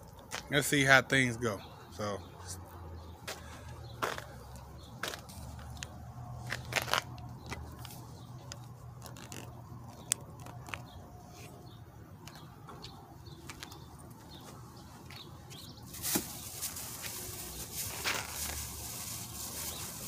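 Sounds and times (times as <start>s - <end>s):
plastic bag crinkling: 5.0s - 11.0s, 15.9s - 20.0s.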